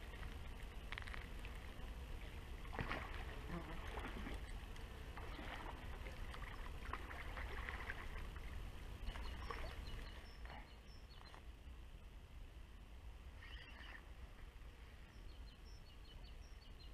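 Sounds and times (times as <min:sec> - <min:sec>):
rustling and light clicks: 0:00.0 - 0:02.0
wind rumbling on microphone: 0:00.0 - 0:16.9.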